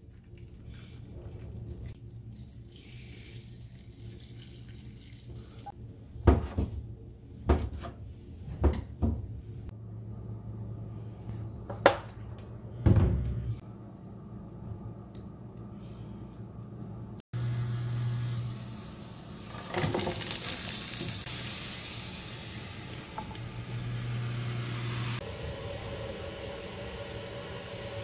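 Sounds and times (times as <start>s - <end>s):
low steady hum: 0.0s - 19.5s
hot water pouring into pot: 17.4s - 23.2s.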